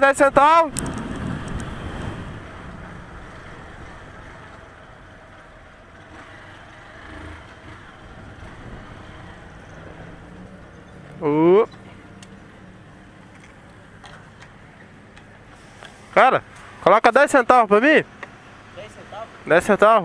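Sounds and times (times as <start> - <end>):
wind and road noise: 0.0 - 20.0
small motorcycle engine: 0.8 - 11.4.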